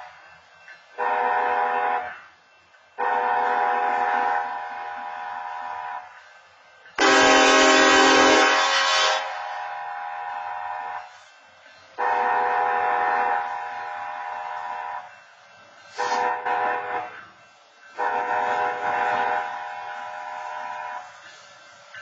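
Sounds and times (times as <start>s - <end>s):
diesel locomotive horn blasts: 1.0s - 2.2s, 3.0s - 6.2s, 7.0s - 11.1s, 12.0s - 15.2s, 15.9s - 17.3s, 18.0s - 21.1s.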